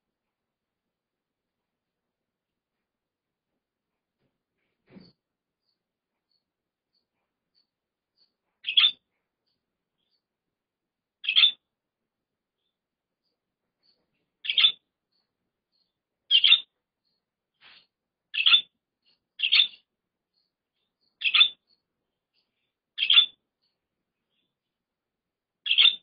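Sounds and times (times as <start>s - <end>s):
budgerigar chirping: 5.6s - 10.3s, 11.2s - 11.7s, 12.6s - 24.6s, 25.6s - 26.0s.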